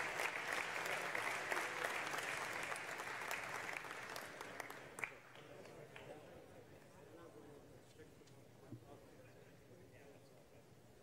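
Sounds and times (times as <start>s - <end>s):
audience applauding: 0.0s - 5.5s.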